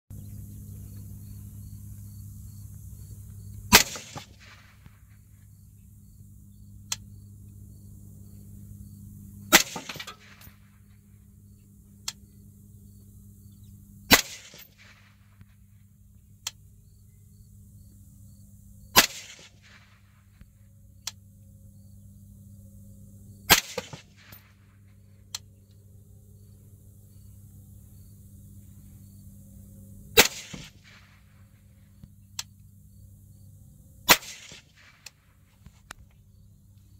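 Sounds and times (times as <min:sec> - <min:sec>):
suppressed rifle shots: 0:03.6 - 0:05.3, 0:09.4 - 0:11.1, 0:14.1 - 0:15.7, 0:18.9 - 0:21.2, 0:23.5 - 0:25.5, 0:30.1 - 0:31.7, 0:34.0 - 0:35.4.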